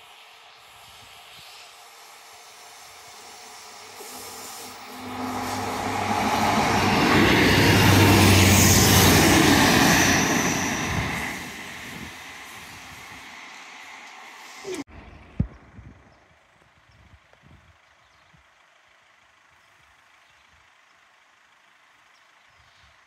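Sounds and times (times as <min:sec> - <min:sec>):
diesel train passing: 0:00.0 - 0:16.5.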